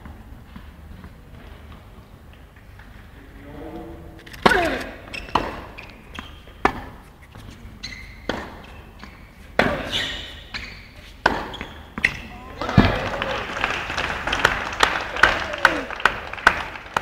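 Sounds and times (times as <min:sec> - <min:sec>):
racket striking tennis ball: 0:04.4 - 0:07.0, 0:08.1 - 0:12.9
tennis ball bouncing: 0:04.4 - 0:13.0.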